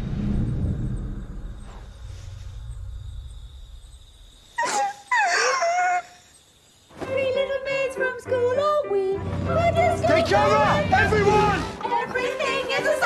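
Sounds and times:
wailing cry with wavering pitch: 0:04.6 - 0:06.3.

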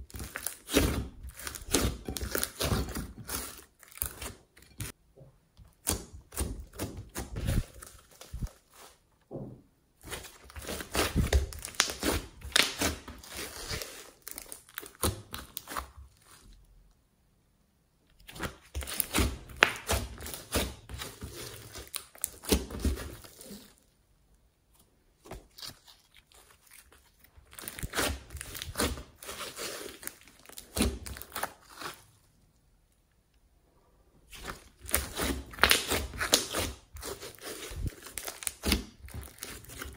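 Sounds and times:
slime crackling and popping: 0:00.0 - 0:05.0, 0:10.0 - 0:16.0, 0:18.3 - 0:23.6, 0:25.5 - 0:32.0, 0:34.3 - 0:39.9.

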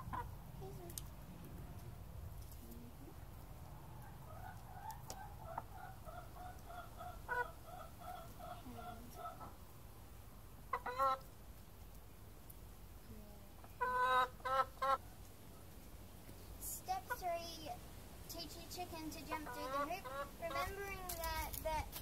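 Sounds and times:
hen clucking: 0:00.0 - 0:00.4, 0:03.6 - 0:09.6, 0:10.6 - 0:11.3, 0:13.6 - 0:15.1, 0:19.0 - 0:21.3
hen squawking: 0:19.2 - 0:20.9.

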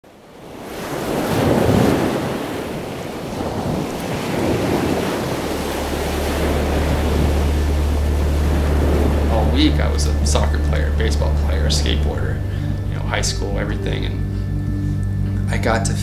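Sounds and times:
rushing noise: 0:04.3 - 0:15.4
steady low hum: 0:05.0 - 0:16.0.

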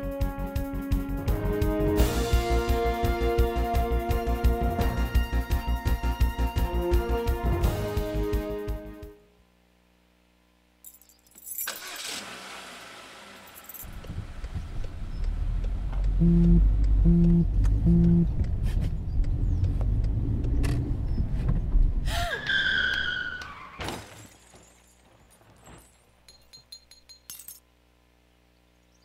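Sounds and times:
car engine running: 0:12.0 - 0:22.0
falling screech: 0:22.0 - 0:23.9
crash with shattering glass: 0:23.8 - 0:25.0.

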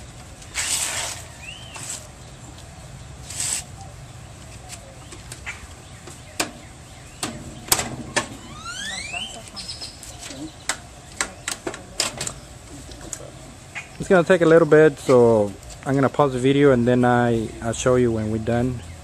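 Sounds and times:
high rising squeaks: 0:07.9 - 0:10.2.

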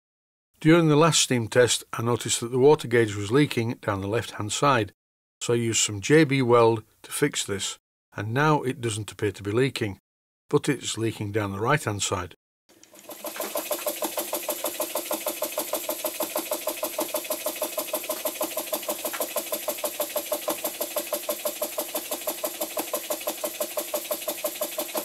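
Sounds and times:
model steam engine chuffing: 0:13.0 - 0:25.0.

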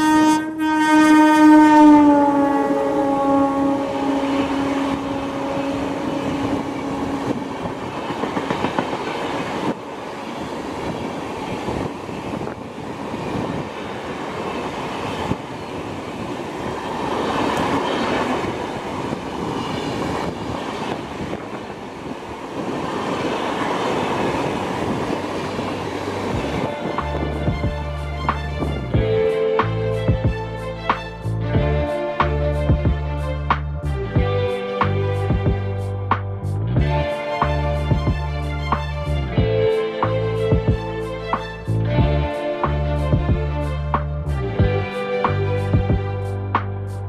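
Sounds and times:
train horn: 0:00.0 - 0:08.3.

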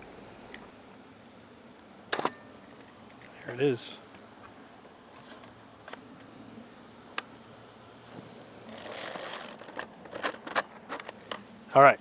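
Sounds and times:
camera scraping ratcheting sound: 0:08.7 - 0:11.4.

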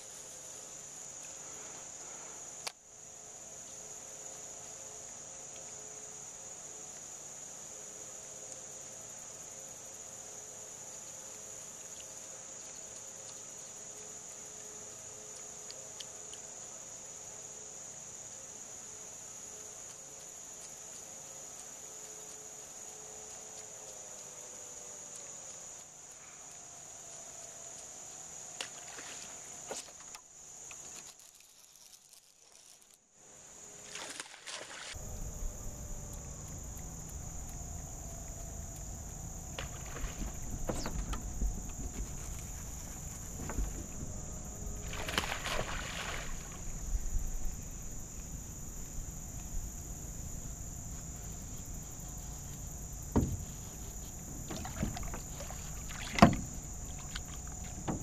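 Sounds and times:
high whine of insects: 0:00.0 - 0:58.0
water lapping against boat: 0:33.9 - 0:47.1, 0:51.1 - 0:58.0
wind rumble: 0:35.0 - 0:58.0
fish thrashing and splashing: 0:39.6 - 0:44.0, 0:44.8 - 0:46.7, 0:54.5 - 0:57.6.

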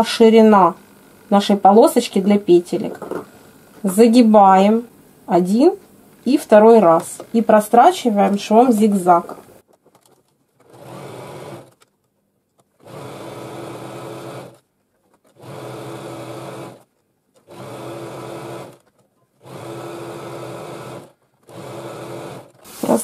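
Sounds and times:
sewing machine running: 0:10.6 - 0:11.8, 0:12.8 - 0:14.6, 0:15.2 - 0:23.0.

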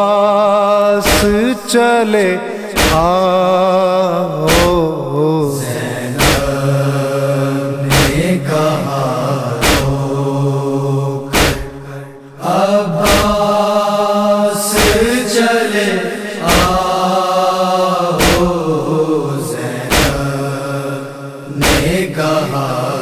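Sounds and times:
chest-beating slaps: 0:01.1 - 0:01.4, 0:02.8 - 0:03.2, 0:04.5 - 0:04.8, 0:06.2 - 0:06.6, 0:07.9 - 0:08.4, 0:09.6 - 0:10.0, 0:11.3 - 0:11.9, 0:13.0 - 0:13.5, 0:14.8 - 0:15.2, 0:16.4 - 0:16.8, 0:18.2 - 0:18.6, 0:19.9 - 0:20.4, 0:21.6 - 0:22.1
voices chanting long notes: 0:05.5 - 0:23.0.

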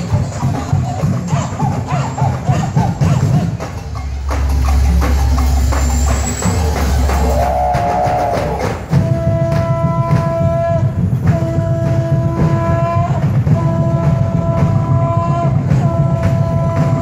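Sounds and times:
drums: 0:00.0 - 0:17.0
wavering tone: 0:01.6 - 0:08.8
long held tone: 0:03.9 - 0:08.6.

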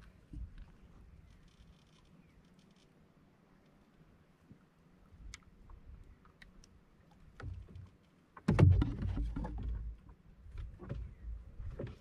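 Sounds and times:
knocks against wooden boat hull: 0:08.4 - 0:10.0.

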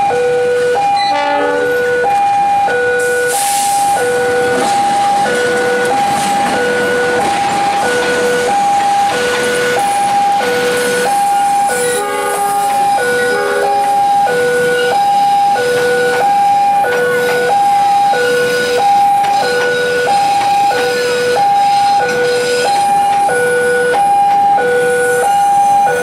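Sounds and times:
train wheel and rail noise: 0:00.0 - 0:26.0
two-tone crossing alarm: 0:00.0 - 0:26.0
train horn: 0:01.0 - 0:02.0, 0:11.6 - 0:15.0, 0:17.1 - 0:23.0.

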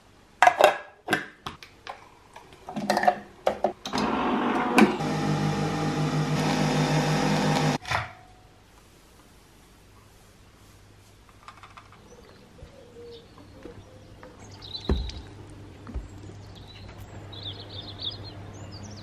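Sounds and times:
coffee machine humming: 0:03.9 - 0:07.8.

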